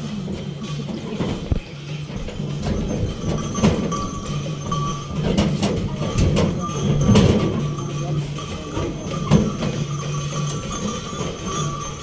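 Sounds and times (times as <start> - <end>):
ox hooves: 0.0 - 12.0
wooden cart knocking and clattering: 0.0 - 12.0.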